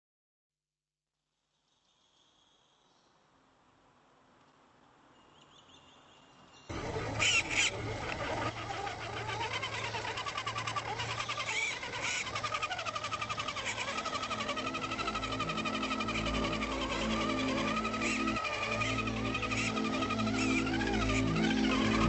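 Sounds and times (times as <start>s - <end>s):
electric motor whining: 6.7s - 22.0s.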